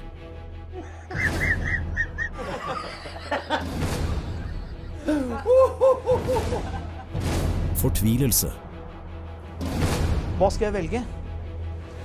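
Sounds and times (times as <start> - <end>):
people laughing: 1.1 - 7.2.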